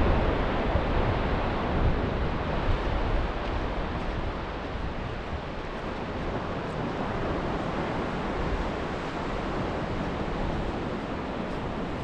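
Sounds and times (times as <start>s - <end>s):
wind rumbling on microphone: 0.0s - 12.0s.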